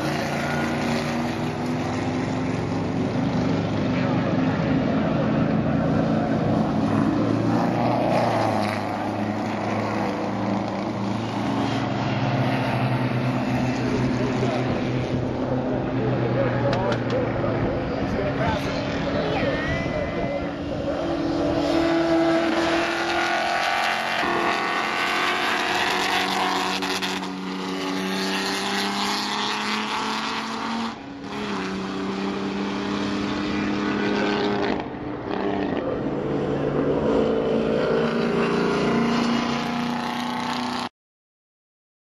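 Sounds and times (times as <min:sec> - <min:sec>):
race car engines running hard: 0:00.0 - 0:40.9.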